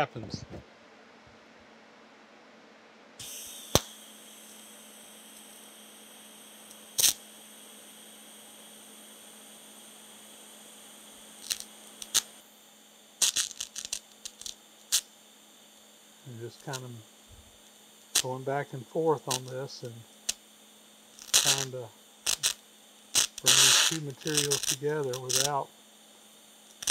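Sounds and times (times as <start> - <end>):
welding arc hissing: 3.2 - 12.5, 13.1 - 26.9
sharp crackles and clicks: 6.6 - 7.2, 11.4 - 12.4, 13.2 - 15.1, 18.2 - 18.4, 19.2 - 20.4, 21.2 - 22.6, 23.2 - 25.7, 26.7 - 26.9.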